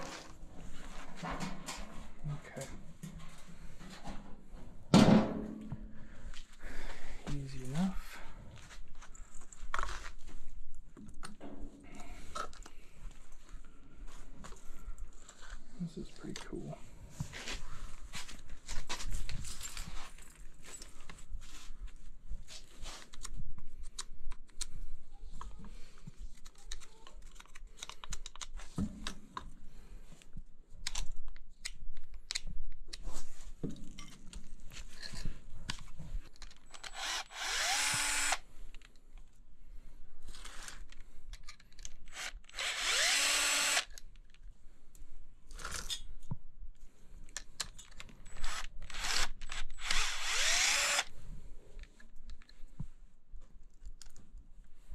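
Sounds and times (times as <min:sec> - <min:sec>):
cordless drill whining: 0:36.7 - 0:38.4, 0:42.0 - 0:44.0, 0:48.3 - 0:51.1.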